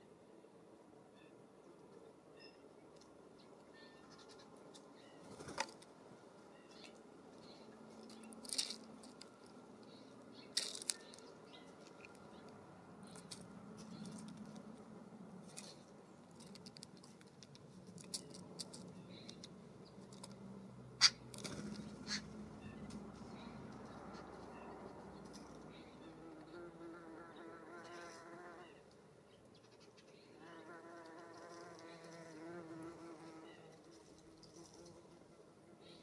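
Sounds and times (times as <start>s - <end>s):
bird ticks and chirps: 6.5s - 14.8s, 15.5s - 26.6s.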